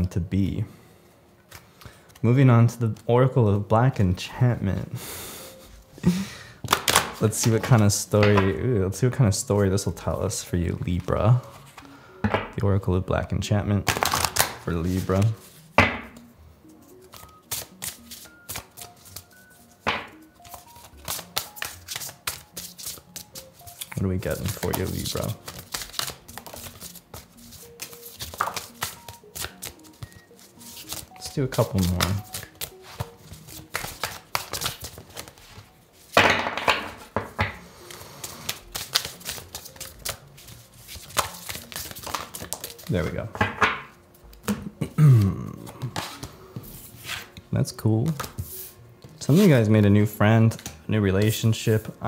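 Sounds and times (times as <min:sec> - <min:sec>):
soft background music: 0:00.0 - 0:52.0
cards being shuffled: 0:06.6 - 0:08.6, 0:13.8 - 0:49.7.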